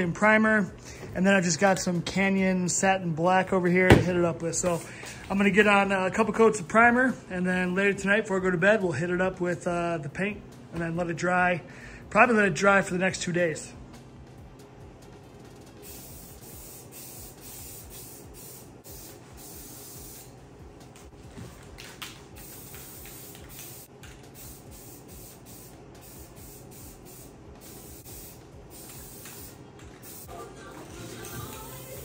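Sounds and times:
aerosol spray can hissing: 15.8s - 20.4s, 22.2s - 30.4s.

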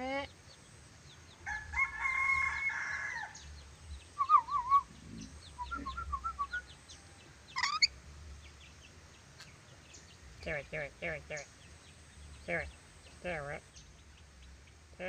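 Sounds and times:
lorikeet whistling and calling: 4.2s - 6.8s, 7.5s - 7.9s.

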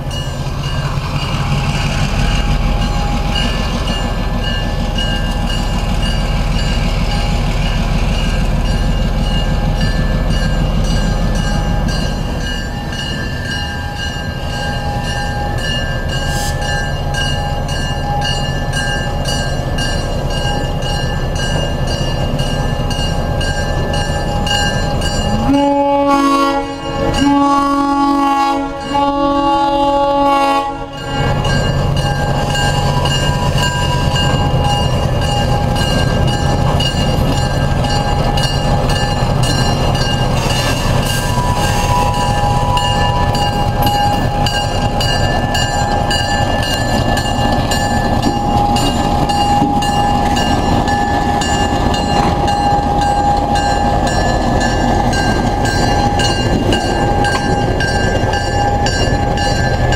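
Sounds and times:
diesel locomotive running: 0.0s - 59.9s
locomotive air horn blasts: 25.3s - 31.1s.

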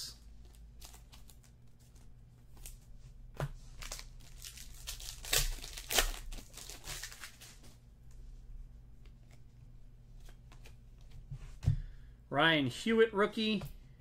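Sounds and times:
card wrapper crinkling: 0.4s - 2.0s, 3.7s - 7.6s
sharp wrapper crackles: 3.8s - 7.6s.

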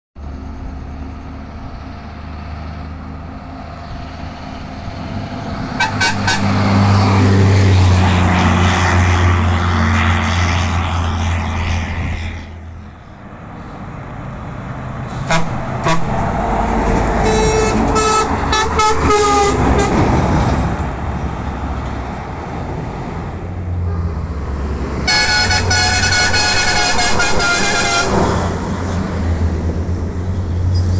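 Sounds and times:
truck diesel rumble: 0.2s - 30.9s
truck air horns blowing: 5.7s - 7.2s, 15.1s - 16.2s, 17.2s - 20.1s, 25.0s - 28.4s.

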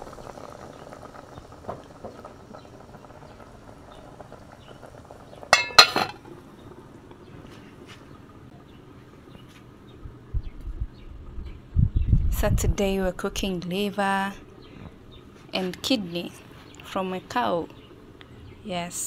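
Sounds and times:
water boiling softly: 0.0s - 19.0s
metal lid clanking onto pot: 5.5s - 6.3s.

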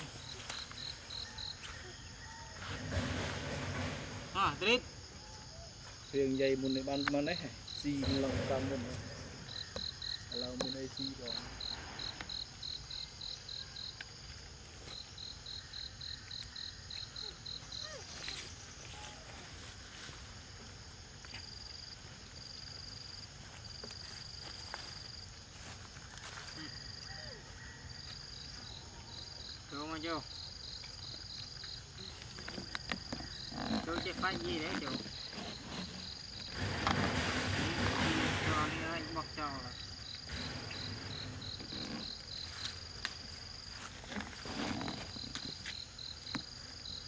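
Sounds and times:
insect pulsing high call: 0.0s - 3.2s, 4.2s - 14.2s, 14.8s - 20.3s
insects trilling: 0.0s - 47.0s
rustle: 0.0s - 47.0s.

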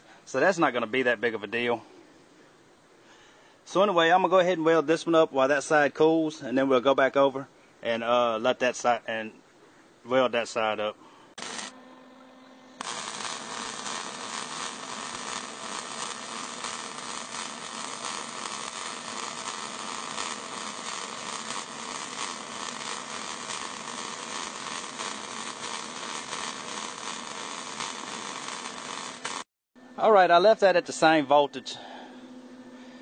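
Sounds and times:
welding arc crackling buzz: 11.4s - 11.8s, 12.8s - 29.5s.

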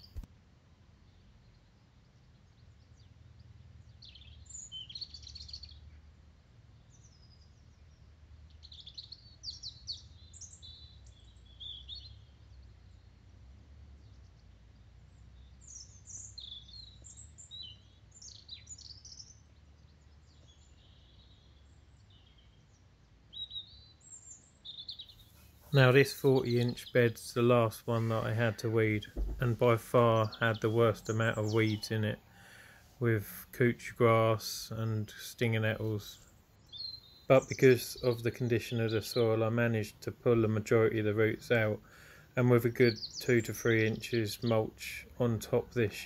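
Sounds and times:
small birds chirping: 0.0s - 0.3s, 0.9s - 46.0s
distant road traffic rumble: 25.3s - 46.0s.

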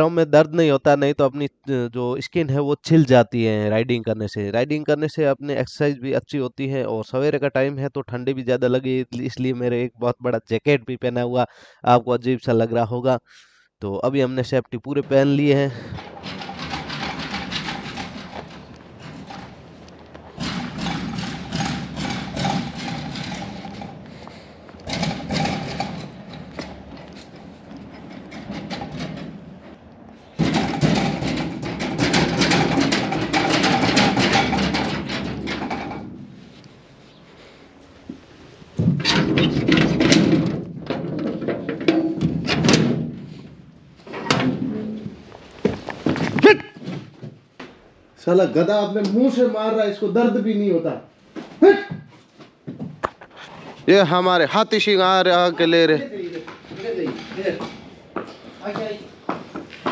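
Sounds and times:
sheet-metal door rattling and clanging: 15.0s - 36.6s, 38.7s - 46.4s, 54.0s - 59.4s
footsteps on sandy ground: 56.4s - 59.9s.

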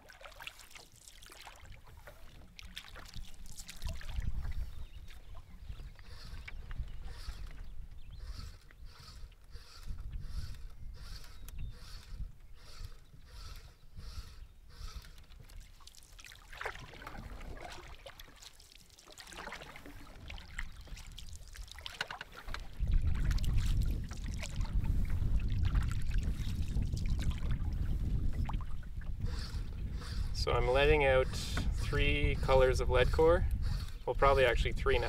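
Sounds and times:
paddle strokes in water: 0.0s - 35.0s
wind rumble on microphone: 3.2s - 15.6s, 22.4s - 35.0s.

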